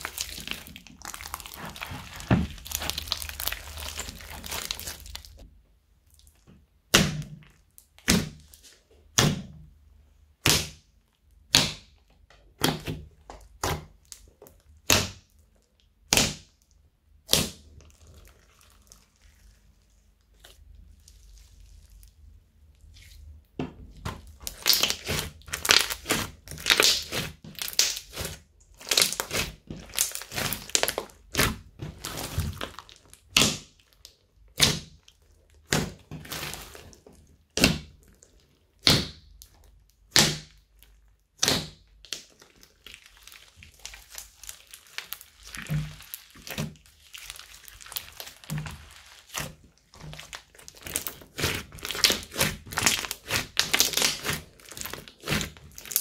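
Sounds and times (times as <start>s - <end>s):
slime clicking and popping: 24.2s - 36.8s, 38.8s - 56.0s.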